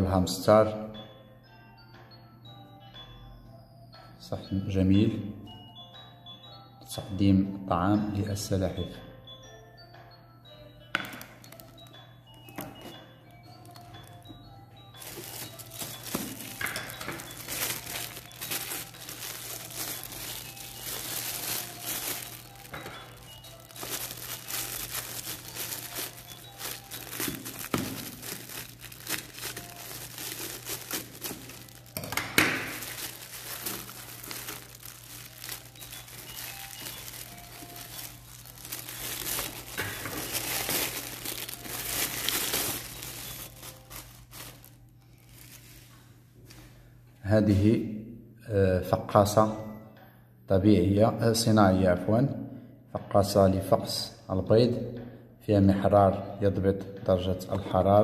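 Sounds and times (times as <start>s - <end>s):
plastic wrapping crinkling: 11.0s - 46.6s.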